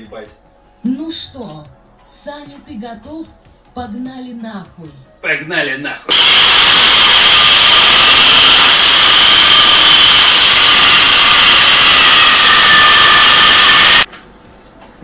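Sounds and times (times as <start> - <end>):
electric drill grinding: 6.1 - 14.1.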